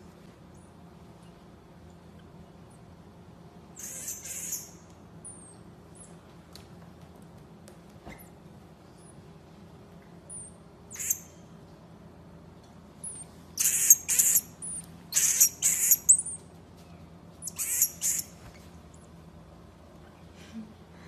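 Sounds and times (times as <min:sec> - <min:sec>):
marmoset harsh calls: 0:03.8 - 0:06.1, 0:10.3 - 0:11.4, 0:13.0 - 0:16.4, 0:17.4 - 0:18.4
marmoset high chirps: 0:03.8 - 0:06.2, 0:10.3 - 0:11.5, 0:13.0 - 0:16.5, 0:17.4 - 0:18.4.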